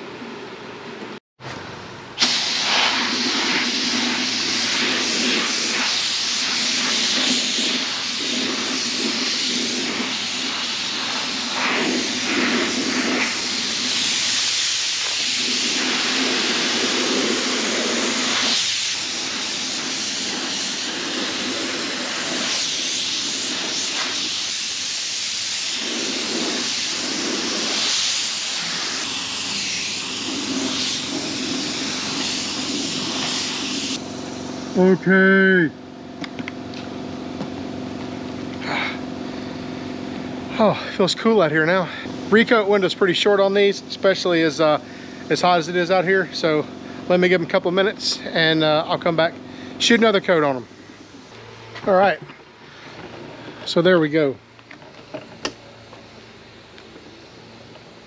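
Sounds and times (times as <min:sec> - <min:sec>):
paint spray gun hissing: 0:02.2 - 0:34.8, 0:47.1 - 0:52.1.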